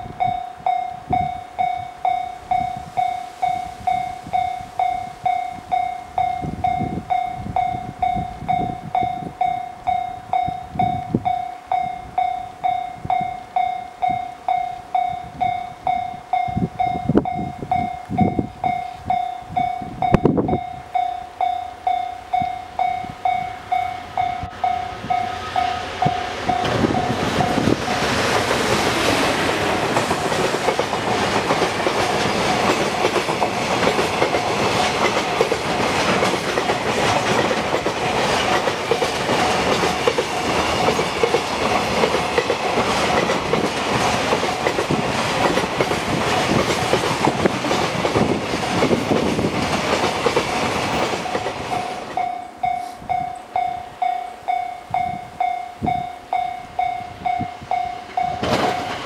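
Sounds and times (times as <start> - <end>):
electric locomotive passing: 0.0 - 59.0
level crossing warning bell: 0.0 - 59.0
train wheels clattering on rail joints: 22.4 - 59.0.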